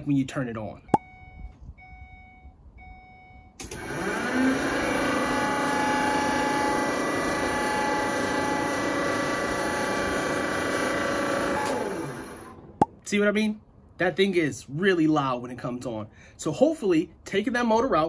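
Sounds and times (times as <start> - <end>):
air conditioning fan motor whining: 3.6 - 12.8.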